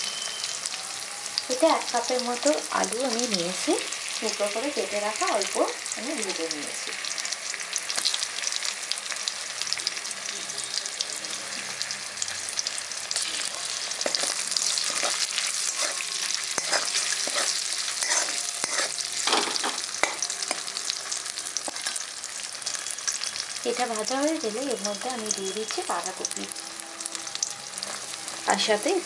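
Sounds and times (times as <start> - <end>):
food sizzling in oil: 0.0 - 29.0
metal spatula scraping pan: 13.2 - 20.7, 21.6 - 22.0.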